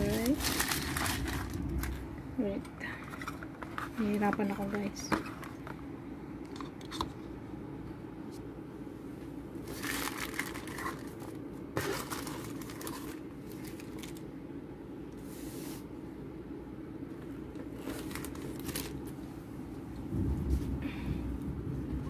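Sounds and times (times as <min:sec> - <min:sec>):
plastic film crinkling: 0:00.0 - 0:02.1, 0:09.6 - 0:14.2, 0:17.6 - 0:19.2
steady low hum: 0:00.0 - 0:22.0.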